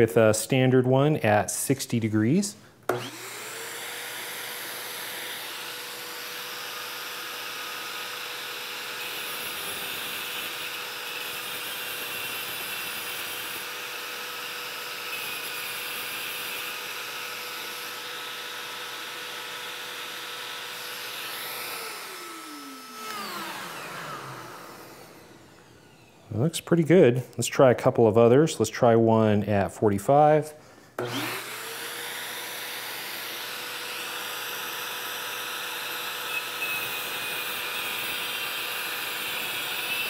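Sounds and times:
shop vacuum running: 0:02.5 - 0:26.8, 0:31.0 - 0:40.0
rotary tool grinding: 0:20.7 - 0:26.1.

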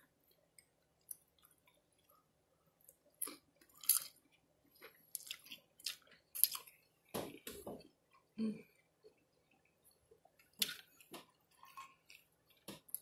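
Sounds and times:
person chewing: 0:00.3 - 0:13.0
wet smacks and clicks: 0:10.4 - 0:11.8.

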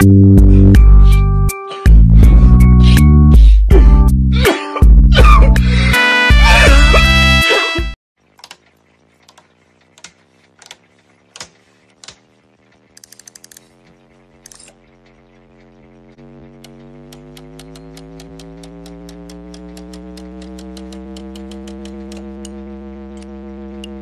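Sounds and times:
faint hum: 0:08.2 - 0:24.0
dial clicking as turned: 0:08.4 - 0:13.7, 0:16.6 - 0:22.6.

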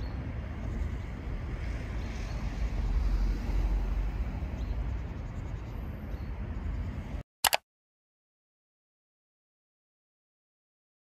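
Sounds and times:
wind rumbling on microphone: 0:00.0 - 0:07.2
outdoor ambience: 0:00.0 - 0:07.6
quick clicks: 0:07.4 - 0:07.6.

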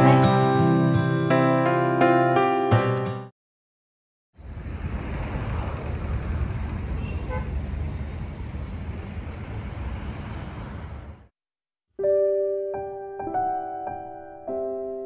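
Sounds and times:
traffic rumble: 0:04.4 - 0:11.3.

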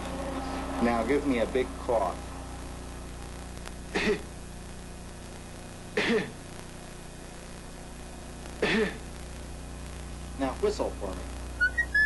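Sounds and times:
man coughing: 0:03.9 - 0:04.3, 0:06.0 - 0:06.4, 0:08.6 - 0:09.0.

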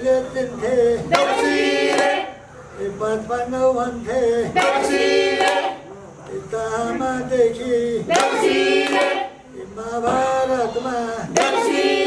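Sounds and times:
group singing together: 0:00.0 - 0:12.0
hand clapping: 0:01.1 - 0:02.2, 0:04.6 - 0:05.7, 0:08.1 - 0:09.3, 0:11.3 - 0:11.9.

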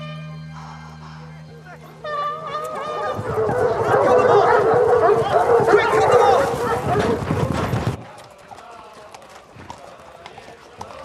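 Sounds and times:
hounds yelping and baying: 0:02.1 - 0:07.7.

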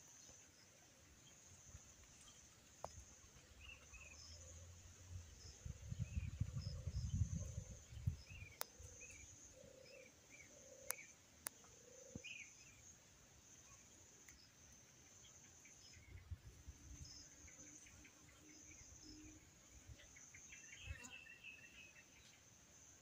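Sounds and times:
insects buzzing: 0:00.0 - 0:23.0
wind rumbling on microphone: 0:05.0 - 0:08.6.

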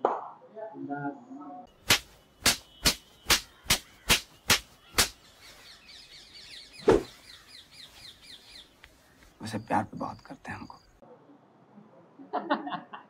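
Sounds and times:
faint bird chirping: 0:01.1 - 0:11.0
sharp knocks: 0:01.8 - 0:05.2.

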